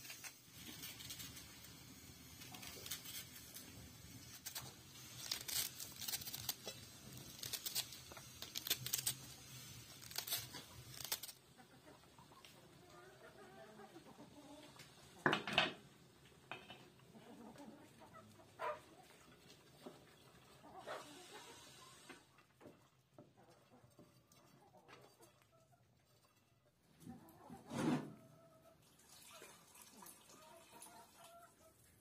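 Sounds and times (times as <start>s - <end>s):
crackling and popping pot: 0.0s - 11.6s, 14.6s - 17.1s
knife crunching through cabbage: 2.4s - 11.4s
hens clucking: 11.4s - 15.0s, 17.0s - 22.2s.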